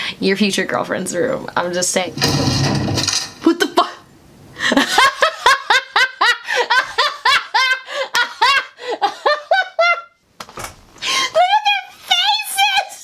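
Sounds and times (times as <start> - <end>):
woman laughing hard: 4.6 - 10.2.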